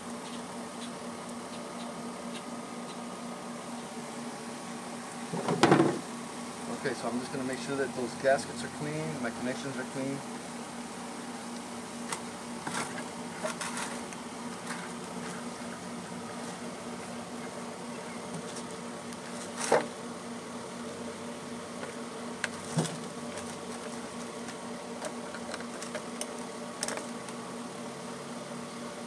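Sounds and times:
steady buzzing hum: 0:00.0 - 0:29.0.

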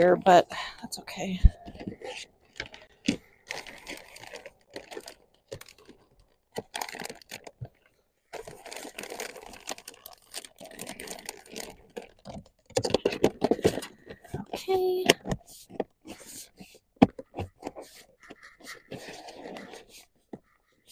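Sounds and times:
plastic packaging crinkling: 0:01.8 - 0:13.8.

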